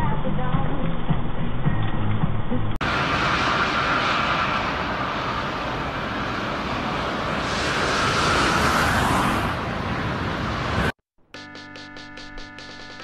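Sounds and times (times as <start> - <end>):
jet engine noise: 2.8 - 11.0
strong wind: 2.8 - 11.0.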